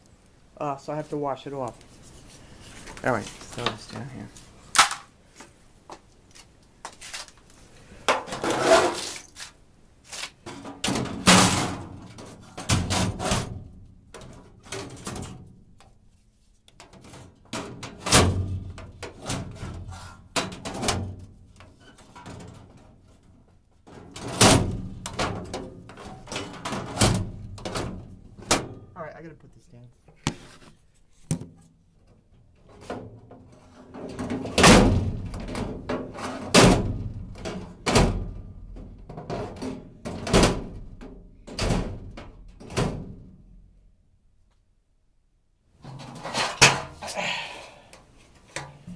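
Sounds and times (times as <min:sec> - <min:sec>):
objects knocking and rustling: 0:04.8 - 0:15.9, 0:30.1 - 0:31.7, 0:45.8 - 0:47.0.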